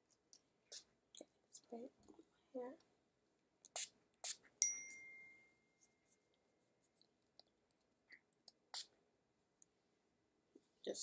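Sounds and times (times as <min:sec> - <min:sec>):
sharp ringing clink: 0:04.6 - 0:05.8.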